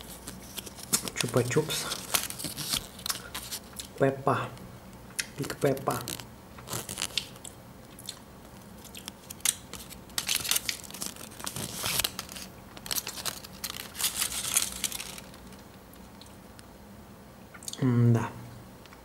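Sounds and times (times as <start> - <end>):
aluminium foil crinkling: 0.0 - 3.9, 5.3 - 16.3.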